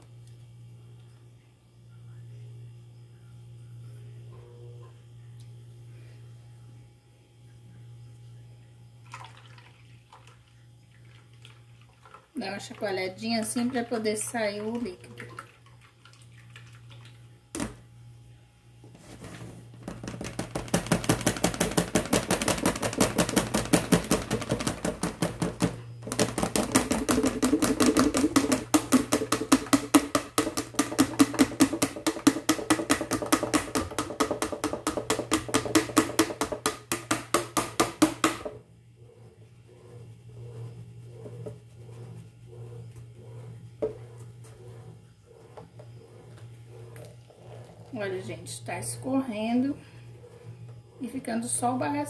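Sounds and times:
colander rattling against bowl: 19.8 - 38.6.

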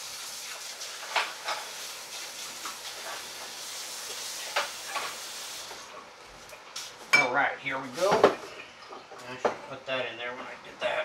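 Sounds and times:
food sizzling in hot pan: 0.0 - 5.9.

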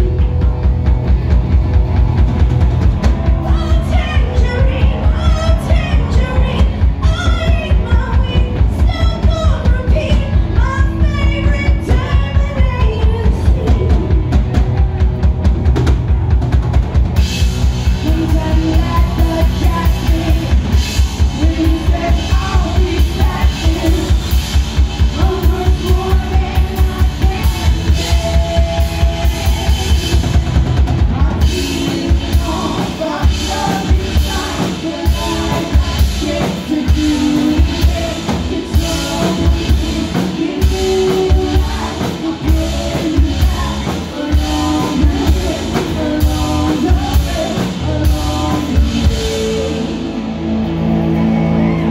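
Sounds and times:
bass guitar: 0.0 - 51.9
drum kit: 0.0 - 51.9
electric guitars: 0.0 - 51.9
person singing: 17.9 - 51.9.

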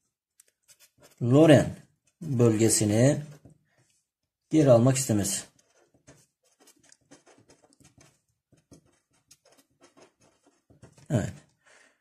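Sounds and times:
marker scratching on paper: 0.4 - 1.4, 5.1 - 11.4.

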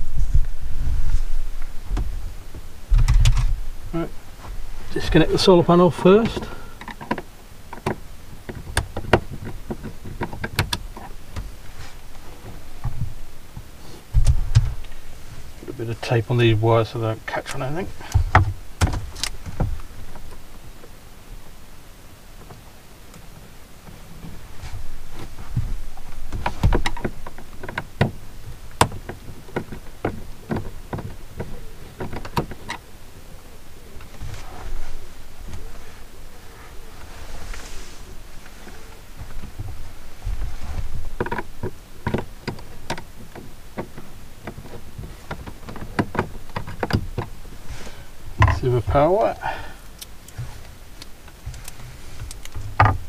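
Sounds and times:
low rumble: 0.0 - 6.7
hands clicking and tapping on wiring: 6.2 - 11.5, 25.4 - 32.8, 40.8 - 47.4, 49.8 - 53.0.

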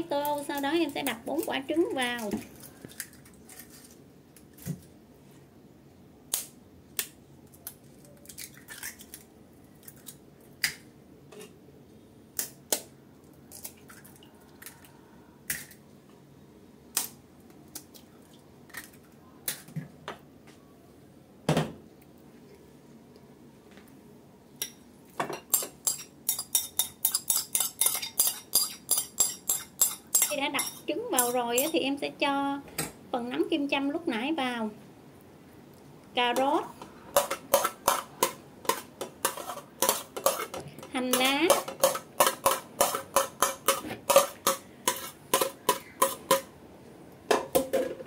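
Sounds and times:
utensil clinking against dishes: 24.6 - 31.8.

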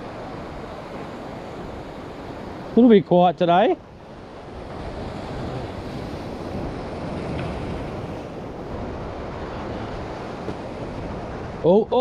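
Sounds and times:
wind buffeting microphone: 3.6 - 12.0.

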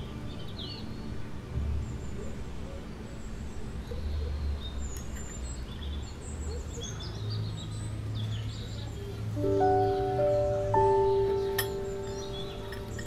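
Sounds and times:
small birds chirping: 0.0 - 13.0
chime-like music notes: 9.4 - 13.0.

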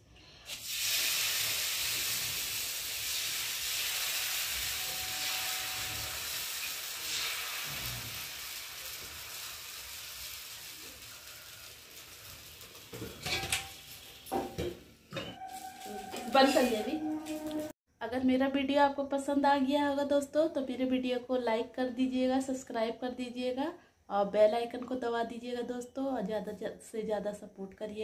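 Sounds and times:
batter sizzling on a hot griddle: 0.4 - 15.0.

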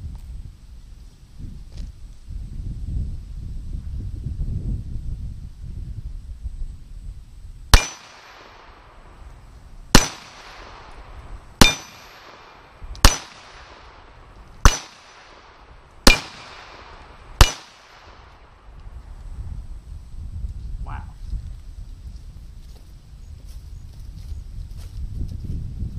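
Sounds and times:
pistol shots with echo: 7.7 - 9.0, 9.9 - 18.6.

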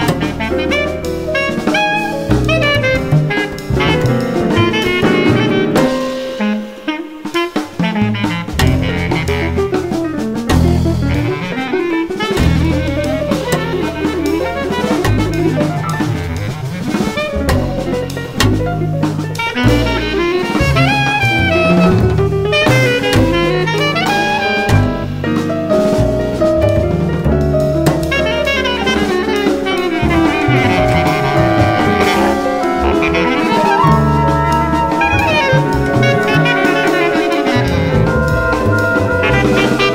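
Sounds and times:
bass clarinet solo: 0.0 - 10.0, 10.6 - 25.3, 26.6 - 39.9
drum kit: 0.0 - 39.9
jazz ensemble: 0.0 - 39.9
low bass notes: 26.0 - 39.9
drum kit hits: 27.5 - 39.9.

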